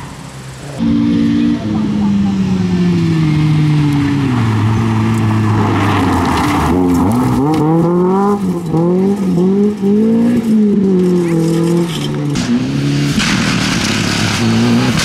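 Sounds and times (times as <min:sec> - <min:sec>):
rally car engine revving: 0:00.0 - 0:15.0
gravel spraying: 0:03.7 - 0:15.0.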